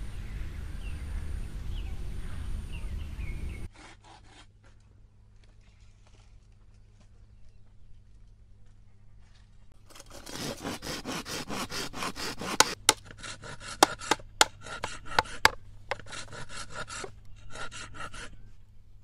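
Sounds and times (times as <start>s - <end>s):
rough rasping strokes: 9.8s - 18.4s.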